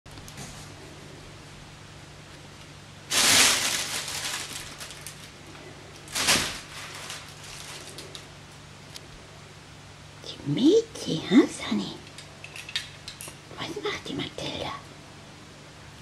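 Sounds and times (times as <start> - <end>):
fabric tunnel rustling: 3.0 - 8.3.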